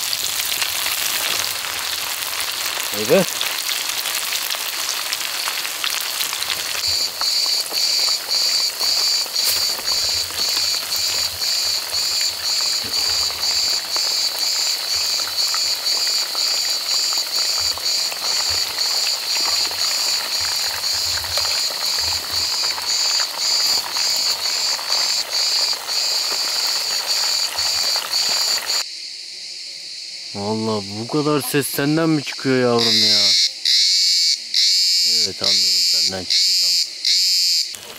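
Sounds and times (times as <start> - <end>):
fish frying in oil: 0.0 - 28.8
cicada buzzing: 0.0 - 32.1, 32.8 - 37.9.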